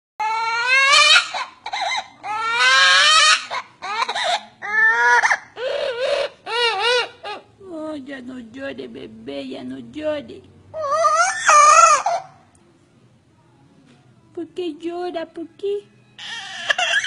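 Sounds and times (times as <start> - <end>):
parrot mimicking crying baby: 0.2 - 7.6, 10.7 - 12.5, 16.2 - 17.0.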